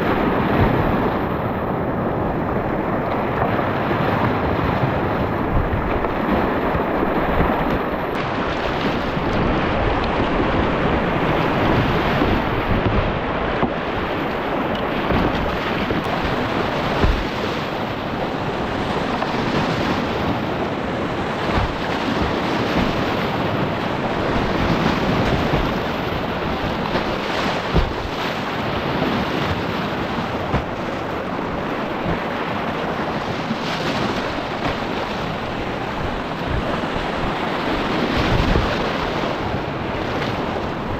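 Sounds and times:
whitewater rushing: 0.0 - 40.9
sharp water splashes: 7.0 - 36.6.

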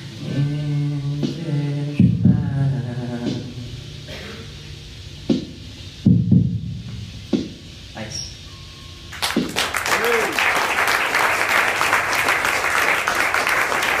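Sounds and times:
audience applause: 9.1 - 14.0
crowd whoop: 9.6 - 14.0.

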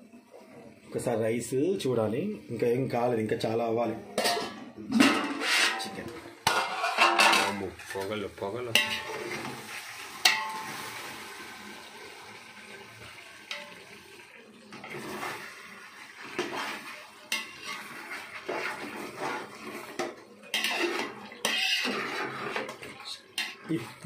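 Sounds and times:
soft sizzle: 0.0 - 24.0
spatula scraping metal pot: 4.2 - 10.8, 14.7 - 24.0.

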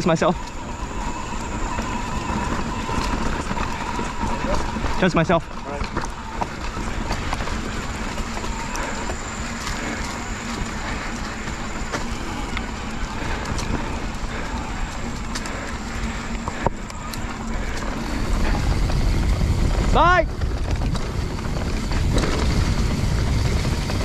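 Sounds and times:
bike rattles and clicks: 0.0 - 24.0
bike tyres on dirt trail: 0.0 - 24.0
wind on microphone: 17.3 - 24.0.

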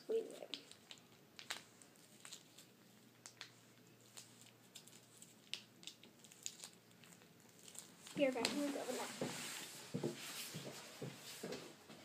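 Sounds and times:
plastic packet crinkling: 0.3 - 8.7.

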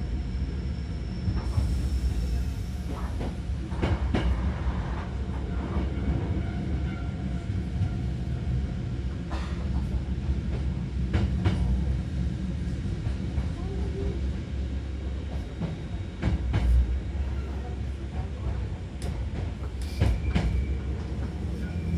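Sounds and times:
electric train rumble: 0.0 - 21.9.

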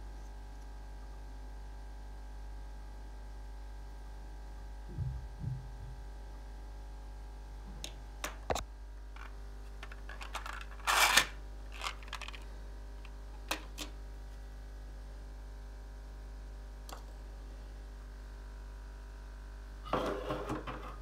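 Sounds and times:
objects clattering: 9.2 - 12.5.

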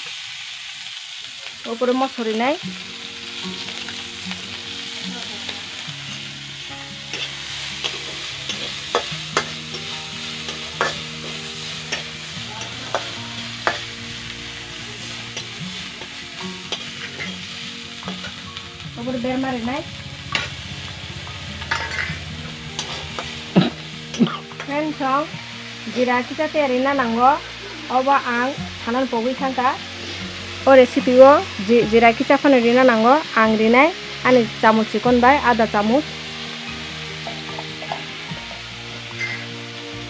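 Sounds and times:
oil sizzling in a wok: 0.0 - 40.0
metal spatula scraping a wok: 5.5 - 18.6, 19.8 - 25.0, 29.8 - 31.2, 39.1 - 39.6.

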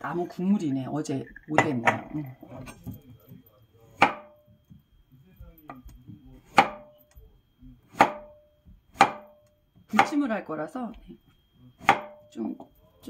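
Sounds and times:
knife chopping on wooden board: 4.0 - 4.4, 5.7 - 6.9, 7.9 - 10.2, 11.8 - 12.2.

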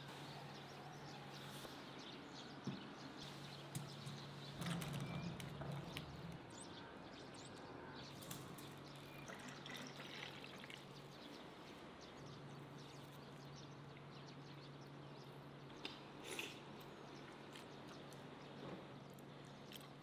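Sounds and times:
juice pouring into cup: 9.2 - 11.0.

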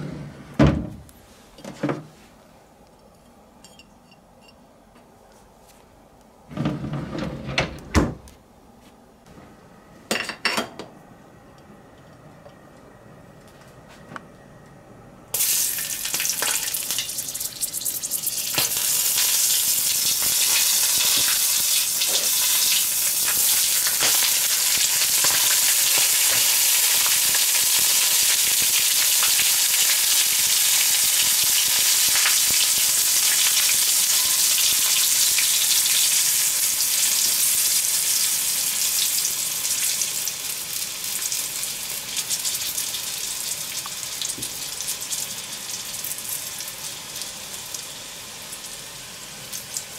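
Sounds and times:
hot oil sizzling and crackling: 15.3 - 49.9.

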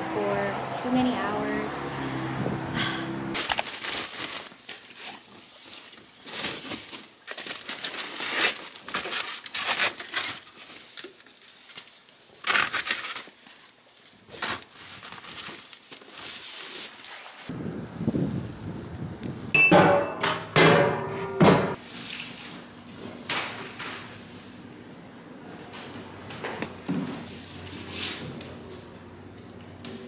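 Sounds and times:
mailers rustling and crinkling: 3.4 - 17.5.

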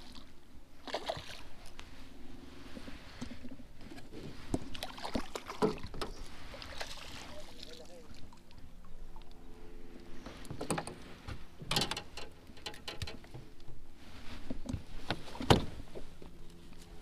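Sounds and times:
faint steady hum: 0.0 - 17.0
knocks and clunks on boat: 3.2 - 6.3, 10.2 - 13.8, 14.4 - 16.4.

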